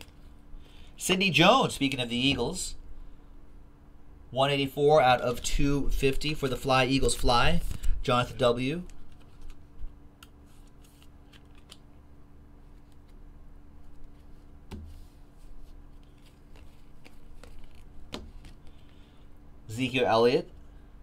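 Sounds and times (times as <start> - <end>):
steady low hum: 0.0 - 21.0
trading cards rustling: 7.0 - 12.0, 13.8 - 19.1.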